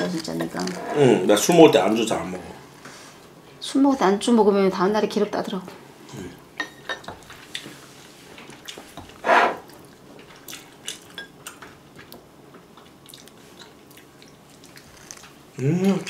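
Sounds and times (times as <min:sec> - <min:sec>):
metal chopsticks scraping bowl: 0:00.4 - 0:01.2
chewing: 0:08.4 - 0:15.4.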